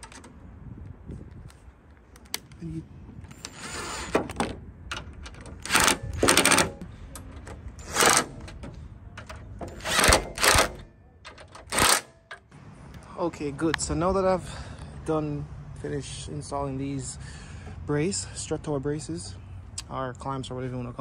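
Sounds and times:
cordless impact gun hammering: 9.6 - 10.8.

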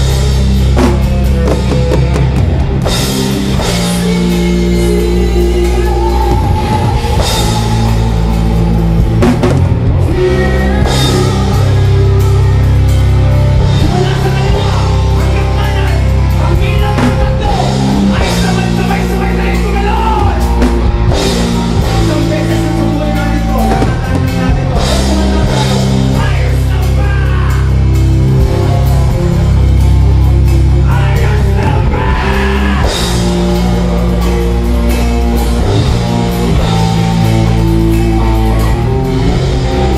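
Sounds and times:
bass guitar: 0.0 - 39.9
drum kit: 0.0 - 39.9
electric guitar: 0.0 - 39.9
person singing into a microphone: 3.4 - 8.8, 10.0 - 27.7, 30.8 - 33.2.

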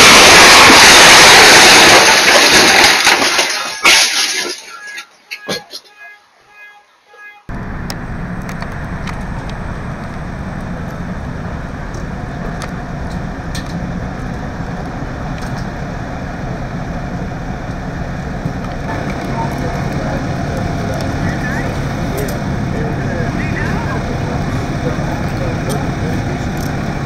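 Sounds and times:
diesel engine idling: 7.5 - 27.0.

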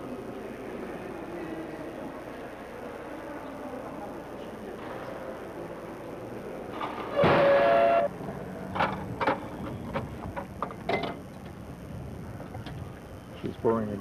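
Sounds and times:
two-tone horn blast: 7.1 - 8.2.

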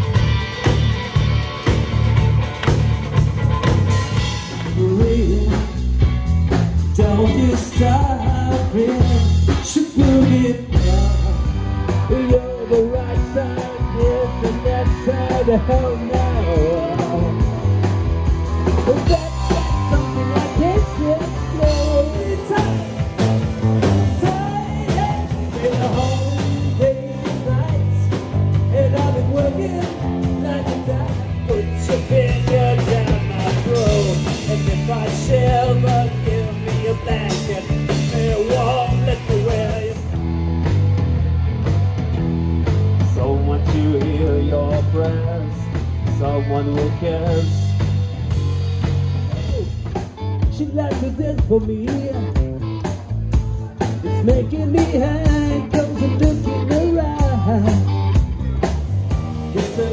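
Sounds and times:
bass guitar: 0.0 - 59.9
drum kit: 0.0 - 59.9
electric guitar: 0.0 - 59.9
person singing: 4.5 - 6.0, 6.8 - 17.6, 18.7 - 40.1, 49.2 - 59.9.

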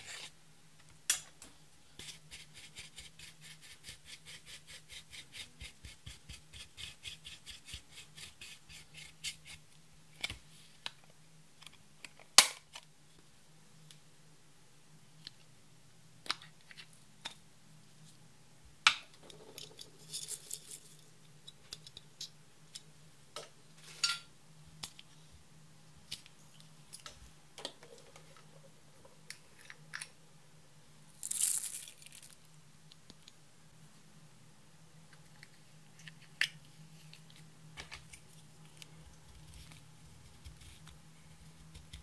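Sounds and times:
faint low hum: 0.0 - 42.0.

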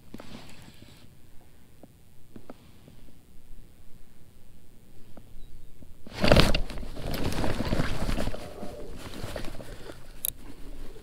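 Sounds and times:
clothing and rod rustling on microphone: 0.0 - 1.6, 5.8 - 11.0.

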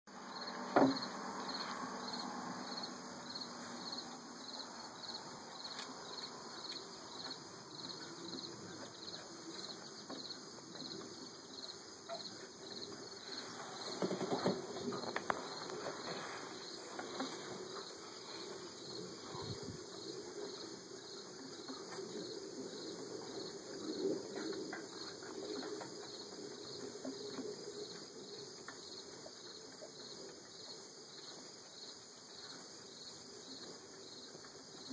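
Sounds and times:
crickets chirping: 0.1 - 34.9
rustles and knocks: 0.6 - 1.8, 12.1 - 19.8.

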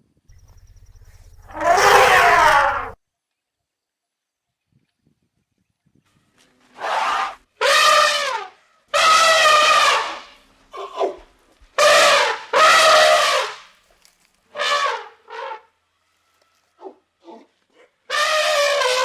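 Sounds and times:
elephants trumpeting: 1.4 - 3.0, 6.7 - 11.2, 11.8 - 13.7, 14.5 - 15.7, 18.1 - 19.0.

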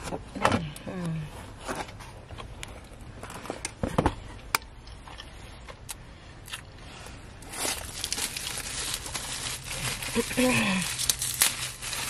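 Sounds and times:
low steady hum: 0.0 - 12.0
paper wrapper rustling: 7.5 - 12.0.

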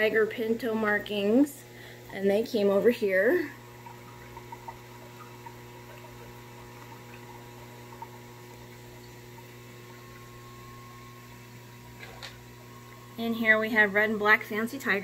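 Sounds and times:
low electrical hum: 0.0 - 15.0
faint water ticks: 2.9 - 13.2.

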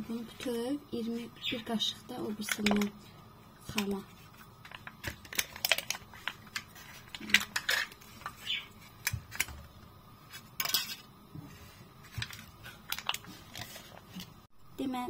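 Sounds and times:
plastic cups clicking and knocking: 2.4 - 3.0, 3.7 - 8.4
foil rustling: 11.6 - 14.5.

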